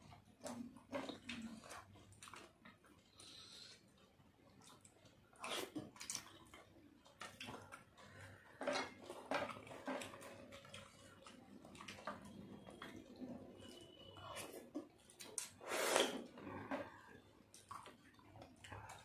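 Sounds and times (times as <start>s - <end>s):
wet chewing and lip smacks: 0.1s - 8.1s, 17.5s - 19.0s.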